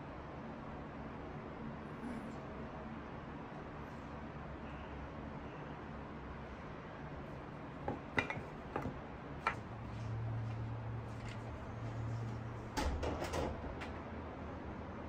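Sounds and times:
dishes clattering on tray: 0:07.9 - 0:09.6
glass knocking on wooden tray: 0:07.9 - 0:09.6.

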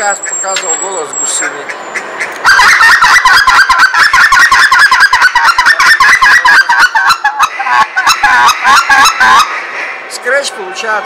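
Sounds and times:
goose call clucks and honks: 0:01.4 - 0:10.1.

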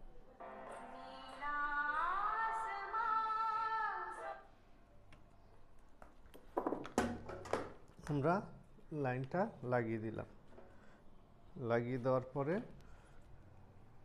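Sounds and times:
background music: 0:00.0 - 0:04.5
woman singing: 0:00.6 - 0:04.5.

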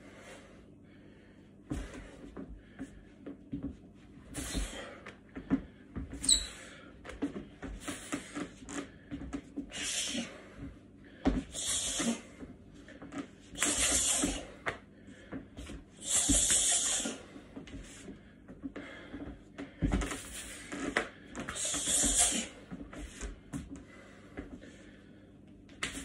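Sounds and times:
person hissing exhalations: 0:09.7 - 0:10.4, 0:11.5 - 0:12.3, 0:13.6 - 0:14.6, 0:16.0 - 0:17.3, 0:21.5 - 0:22.6.

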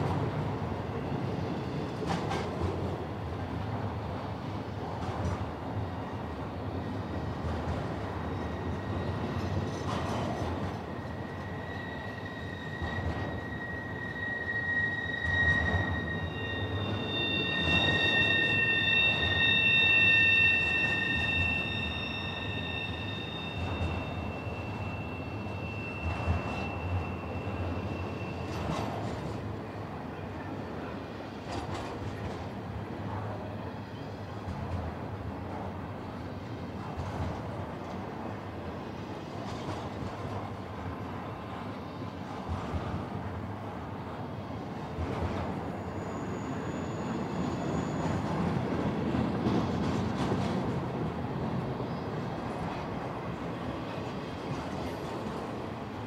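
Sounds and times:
train wheels rumbling on rails: 0:00.0 - 0:56.0
wheels squealing: 0:08.3 - 0:29.3.

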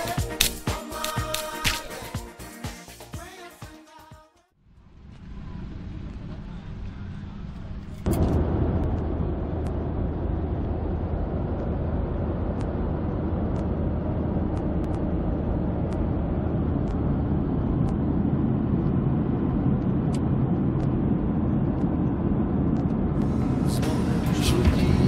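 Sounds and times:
jet cabin engine rush: 0:05.2 - 0:25.0.

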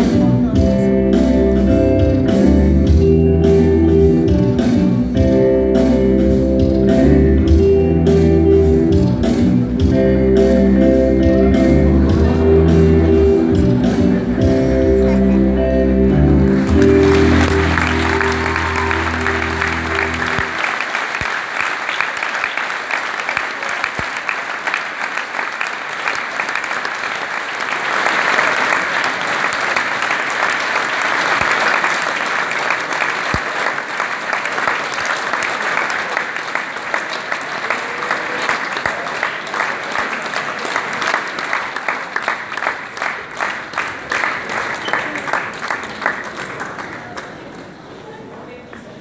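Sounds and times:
audience applauding in a hall: 0:16.3 - 0:49.0
rhythmic clapping in unison: 0:16.4 - 0:47.8.

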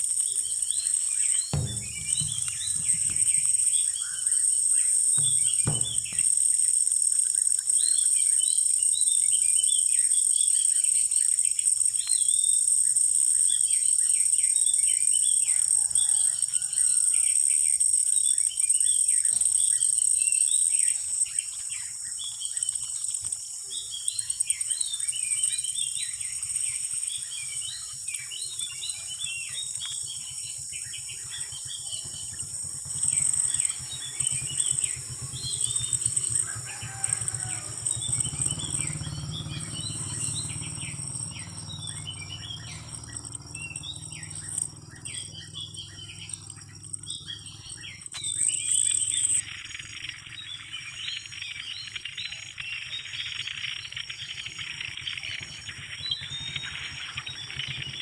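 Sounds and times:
insects droning: 0:00.0 - 0:58.0
small birds chirping: 0:00.0 - 0:58.0
low knocks: 0:01.5 - 0:06.8.

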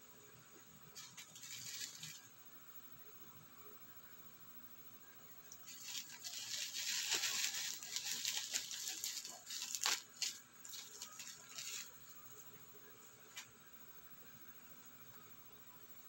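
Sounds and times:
bubble wrap crinkling: 0:01.0 - 0:02.3, 0:05.5 - 0:12.6.

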